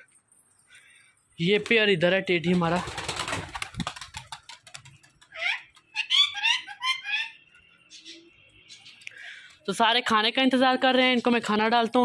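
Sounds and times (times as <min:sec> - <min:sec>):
pigeon wings clattering: 0:01.6 - 0:06.0
high chirping bird calls: 0:04.6 - 0:09.6.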